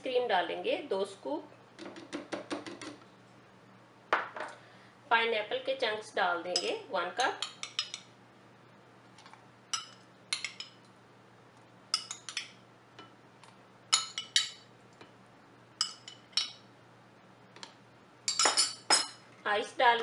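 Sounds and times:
metal spoon clinking glass bowl: 6.5s - 8.1s, 9.7s - 10.8s, 11.9s - 12.6s, 13.9s - 14.7s, 15.8s - 16.6s, 18.3s - 19.2s.

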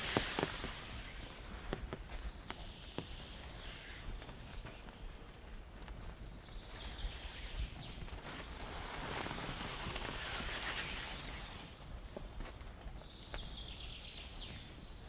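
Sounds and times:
small bird singing: 0.0s - 8.5s, 12.6s - 15.0s
footsteps on wet forest path: 0.0s - 15.0s
rustling through trees: 0.0s - 15.0s.

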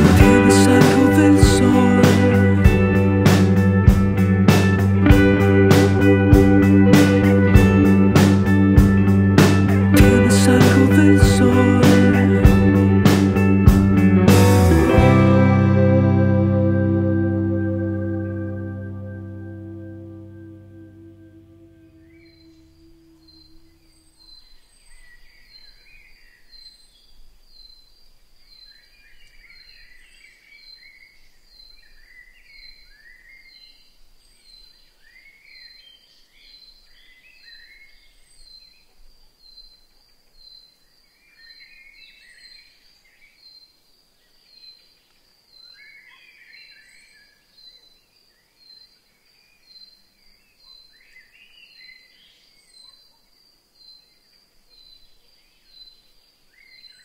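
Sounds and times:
birds chirping: 16.8s - 27.9s.

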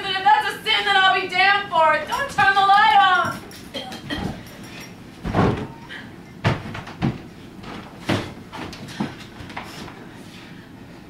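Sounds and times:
knocks and thuds on a stage: 6.4s - 9.2s.

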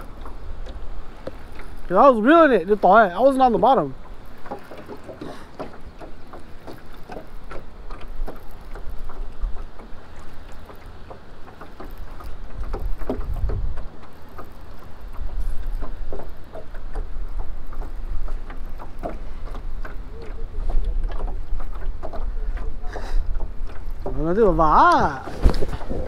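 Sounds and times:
waves lapping against boat hull: 0.0s - 26.0s
wind rumbling on microphone: 11.3s - 26.0s.

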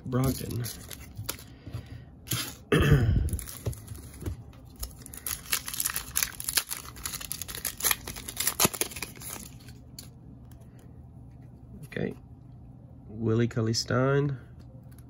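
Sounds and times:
plastic wrapper crinkling: 0.0s - 1.5s, 3.3s - 10.1s
trading cards being handled: 0.0s - 2.6s, 3.3s - 12.3s.

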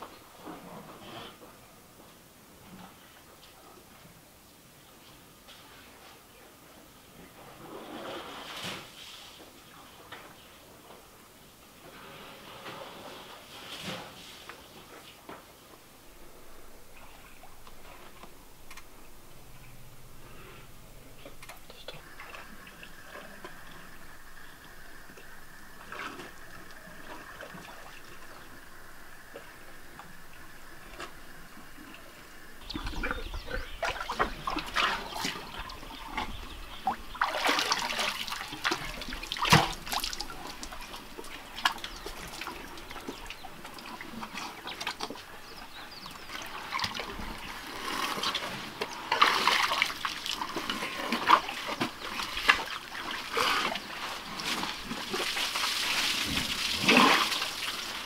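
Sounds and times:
elephants splashing water: 32.2s - 58.0s.

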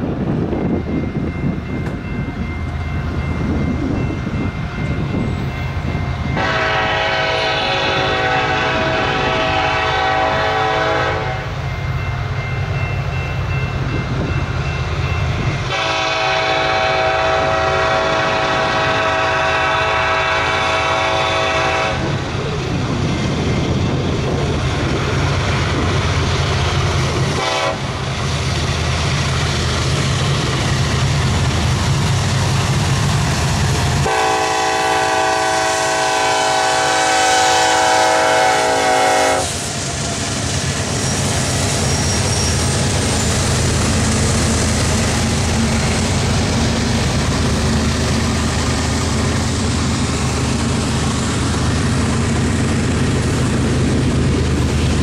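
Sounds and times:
railroad crossing bell ringing: 0.0s - 38.9s, 39.9s - 52.5s
low rumble of approaching train: 0.0s - 55.0s
train air horn blasts: 6.4s - 11.6s, 15.7s - 22.2s, 27.3s - 28.0s, 34.0s - 39.6s.

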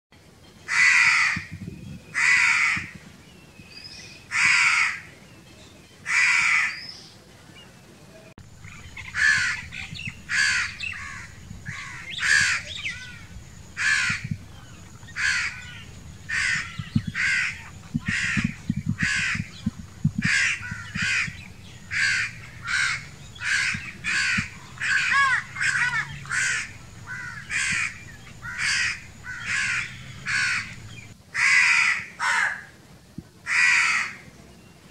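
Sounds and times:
crows cawing: 0.7s - 1.5s, 2.2s - 3.0s, 4.3s - 5.1s, 6.1s - 6.8s, 8.6s - 14.4s, 15.0s - 32.7s, 33.5s - 34.2s.

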